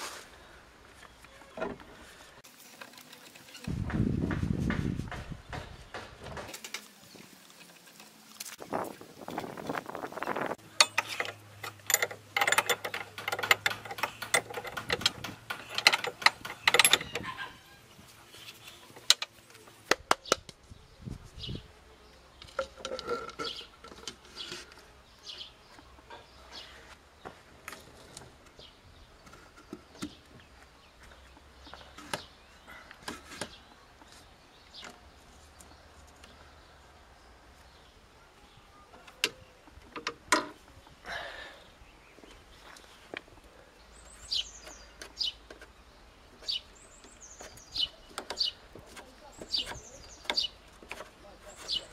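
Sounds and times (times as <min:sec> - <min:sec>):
quick clicks and rattles: 0:10.8 - 0:17.2.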